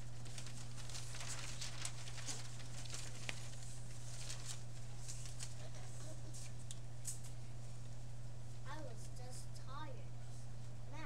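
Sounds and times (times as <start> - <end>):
paper sheets rustling: 0.0 - 7.3
low steady hum: 0.0 - 11.0.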